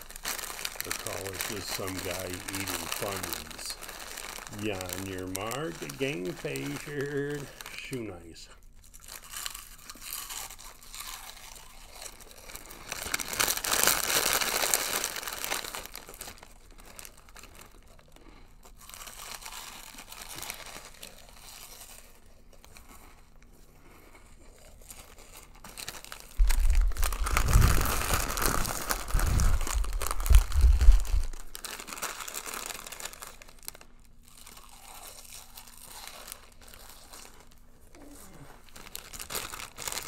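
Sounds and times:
crunching snack eating: 0.0 - 40.0
foil snack bag crinkling: 0.0 - 40.0
low thumps: 26.4 - 31.6.

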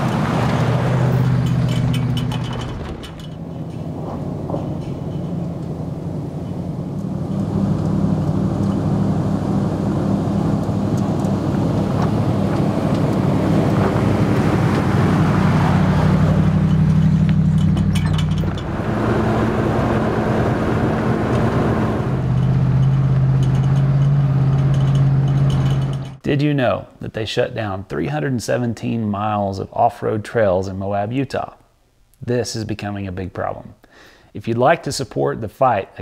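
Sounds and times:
off-road vehicle engines running: 0.0 - 26.2
tyres rolling over dirt: 0.0 - 26.2.

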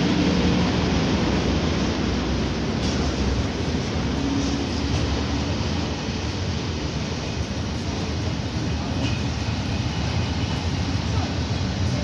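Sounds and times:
freight train wheels rumbling on rails: 0.0 - 12.0.

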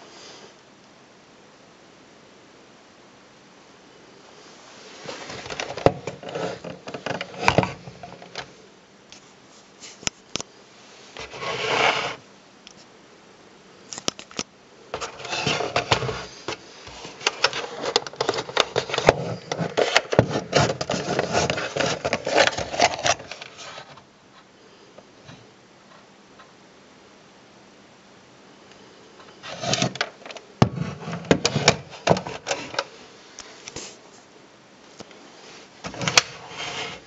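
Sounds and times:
hands scraping plastic camera: 5.0 - 8.5, 15.0 - 23.9.

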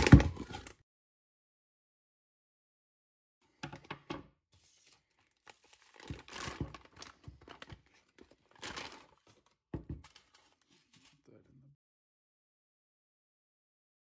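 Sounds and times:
plastic bag crinkling: 5.1 - 10.6.

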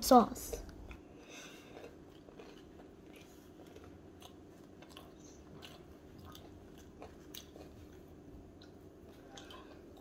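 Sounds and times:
faint chewing: 0.3 - 10.0.

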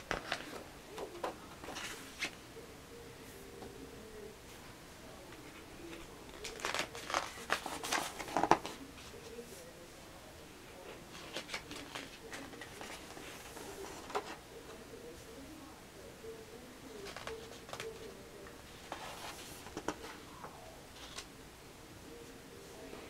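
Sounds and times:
glossy pages rustling: 0.0 - 2.4, 5.4 - 9.6, 11.0 - 14.4, 17.0 - 21.3.

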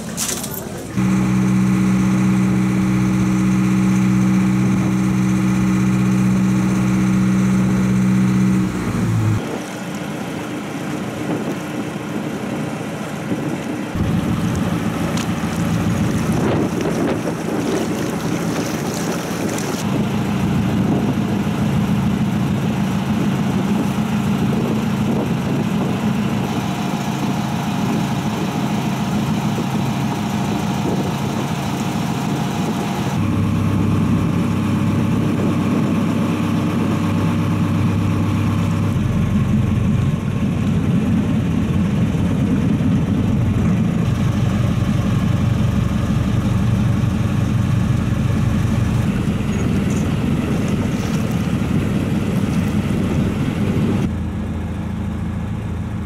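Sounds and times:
motorboat engine running: 0.0 - 56.0
wind and water hiss: 9.4 - 33.1, 47.2 - 54.0.

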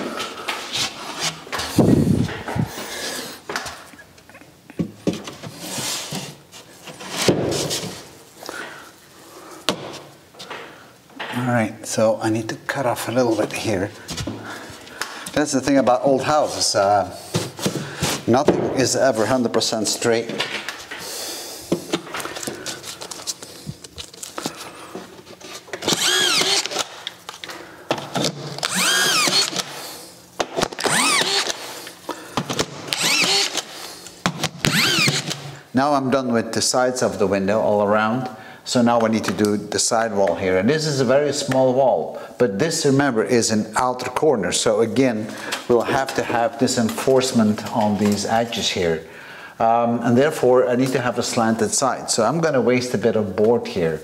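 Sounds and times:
plasterboard scraping and knocking: 5.0 - 8.0
screw gun motor whining: 25.8 - 26.9, 28.6 - 29.7, 30.8 - 31.6, 32.9 - 33.7, 34.6 - 35.4.

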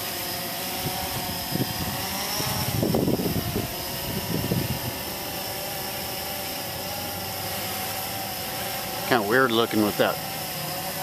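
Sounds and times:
quadcopter motors whining: 0.0 - 11.0
gusty low rumbling: 0.8 - 5.2.

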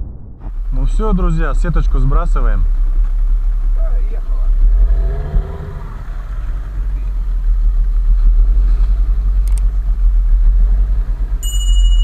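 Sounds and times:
thin high tone: 11.4 - 12.0.

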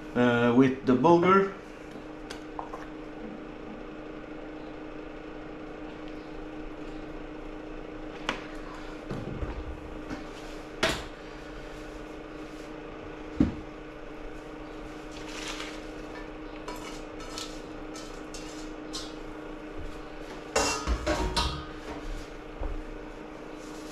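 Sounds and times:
steady low hum: 0.0 - 23.9
colander and saucepan clinking: 20.5 - 21.8.

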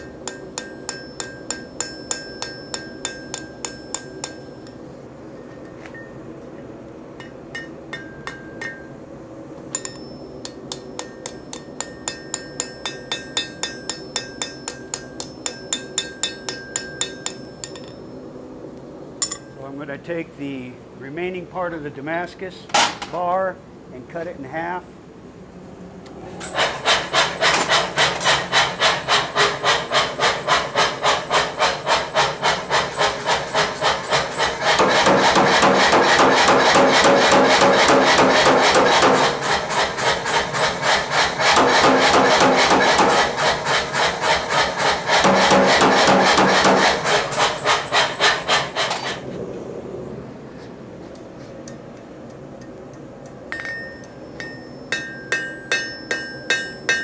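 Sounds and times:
hand hammer ringing on anvil: 0.0 - 4.8, 7.2 - 8.9, 9.7 - 18.0, 19.2 - 19.6, 53.5 - 57.0
power hammer pounding: 26.6 - 49.2.

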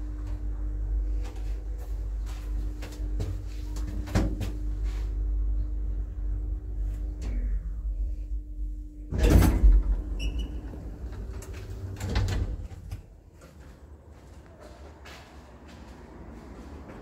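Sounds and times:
lift humming: 0.0 - 17.0
lift doors moving: 9.1 - 13.2.

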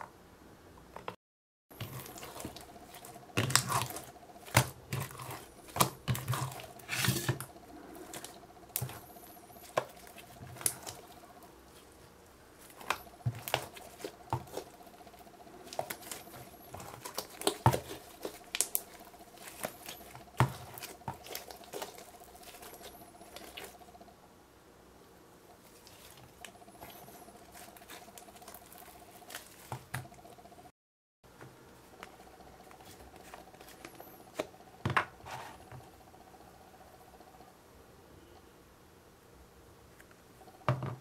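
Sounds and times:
slime squelching: 1.7 - 24.1, 25.5 - 30.7.

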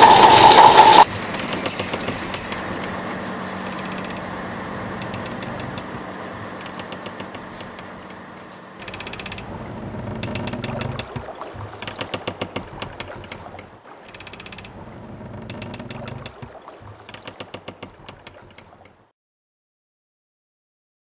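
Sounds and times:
low hum: 0.0 - 11.9
rapid mechanical clicks: 0.0 - 14.8.

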